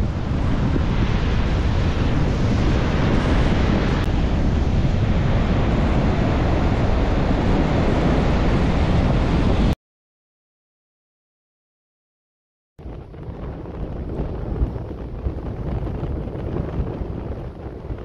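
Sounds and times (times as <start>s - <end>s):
ocean surf breaking: 0.0s - 9.8s
wind buffeting microphone: 0.0s - 9.8s, 12.8s - 18.0s.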